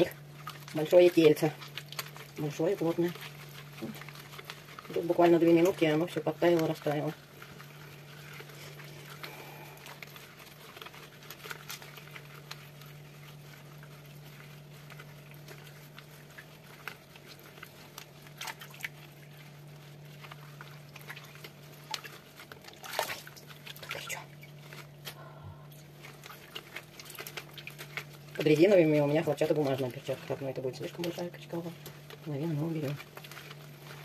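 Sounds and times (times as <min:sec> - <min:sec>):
cheese curd squelching: 0:00.0 - 0:34.0
steady low hum: 0:00.0 - 0:34.0
water slaps and splashes: 0:20.9 - 0:24.6.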